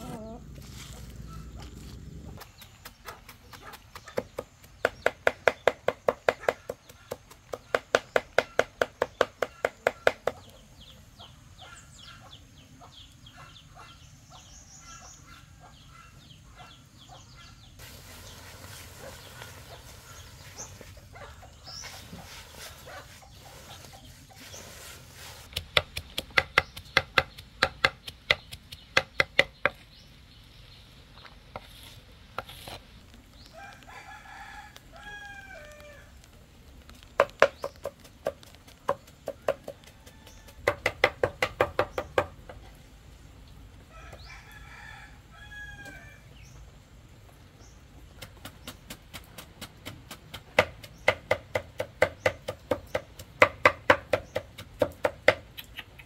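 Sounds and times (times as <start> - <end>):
rooster crowing: 33.6 - 36.1, 44.0 - 46.2
knife chopping on wooden board: 48.2 - 55.4.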